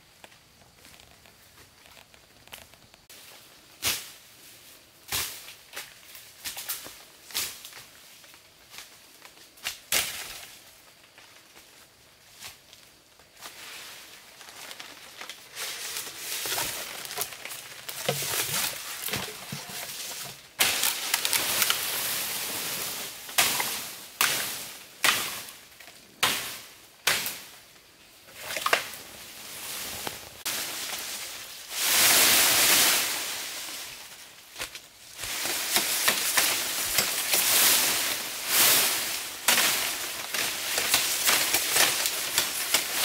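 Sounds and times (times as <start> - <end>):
leaves and stems rustling: 0.1 - 43.0
chopping strikes on bamboo: 23.4 - 25.4, 26.2 - 27.5.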